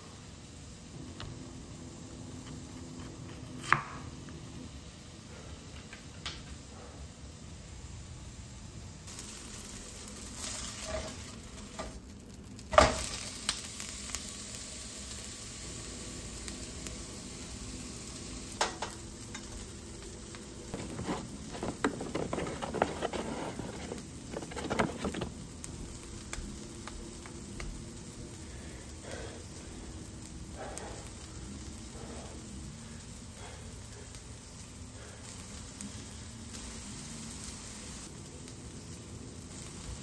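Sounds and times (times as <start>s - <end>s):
butter sizzling in frying pan: 9.1s - 40.0s
kitchen utensils knocking and scraping: 20.8s - 25.3s.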